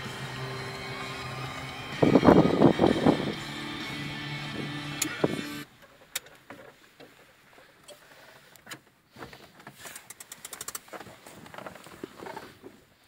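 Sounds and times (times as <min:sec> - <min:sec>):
rattle of clicks: 0:09.8 - 0:12.4.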